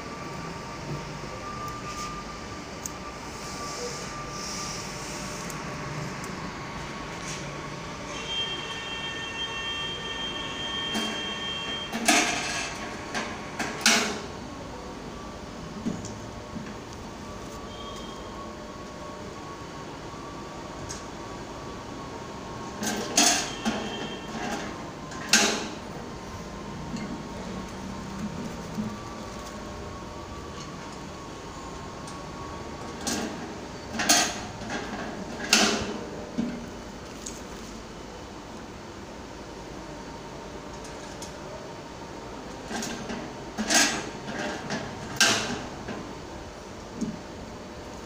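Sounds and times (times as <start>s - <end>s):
steady background hum: 0.0s - 48.0s
coin mechanism metallic clunks: 11.9s - 14.3s, 22.8s - 25.8s.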